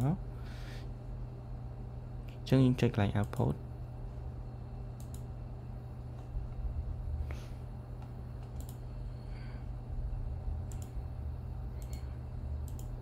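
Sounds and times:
steady low hum: 0:00.0 - 0:13.0
computer mouse clicks: 0:05.0 - 0:05.3, 0:08.0 - 0:08.8, 0:10.6 - 0:11.0, 0:11.8 - 0:13.0.

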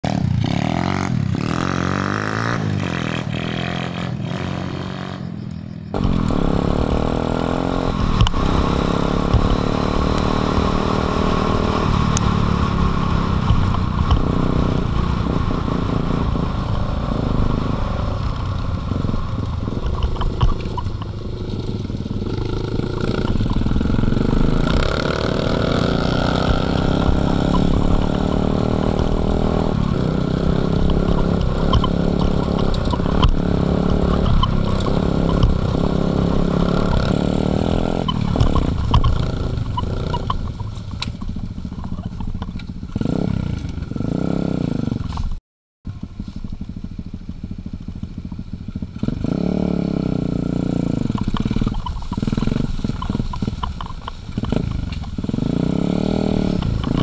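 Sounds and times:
dirt bike engines: 0:00.0 - 0:57.0
wind buffeting: 0:05.9 - 0:44.3.

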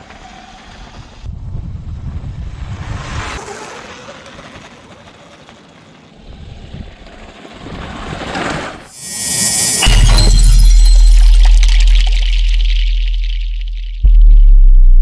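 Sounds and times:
bright rising swoosh: 0:08.9 - 0:14.0.

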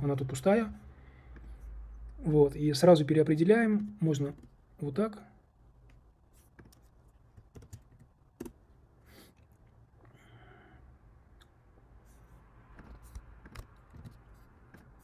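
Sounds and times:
computer keyboard keypress: 0:07.4 - 0:08.6.

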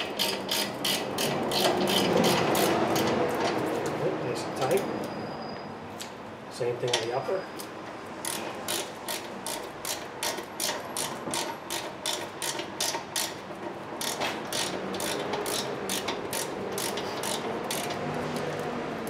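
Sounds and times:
ratchet wrench clicking: 0:00.0 - 0:03.2, 0:07.6 - 0:18.5.

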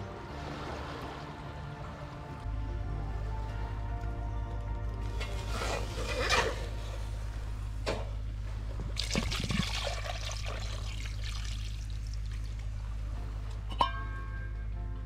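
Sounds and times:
liquid pouring into pot: 0:09.0 - 0:12.5.

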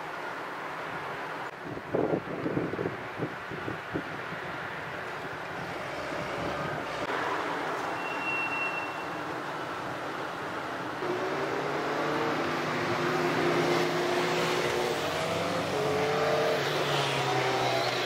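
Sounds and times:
steady background noise: 0:00.0 - 0:18.0
vehicle engine accelerating: 0:11.0 - 0:18.0.

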